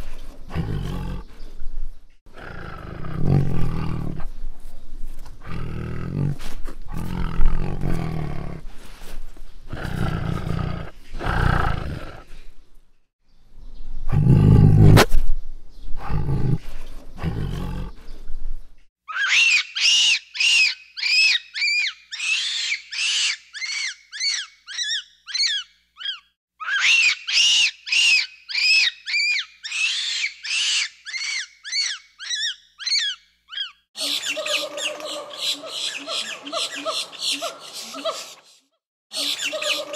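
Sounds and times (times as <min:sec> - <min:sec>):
tiger roaring and growling: 0:00.5 - 0:01.3, 0:02.3 - 0:04.3, 0:05.4 - 0:08.7, 0:09.7 - 0:12.4, 0:14.1 - 0:15.1, 0:16.0 - 0:18.0
monkey squeaky calls: 0:19.1 - 0:38.3, 0:39.2 - 0:39.9.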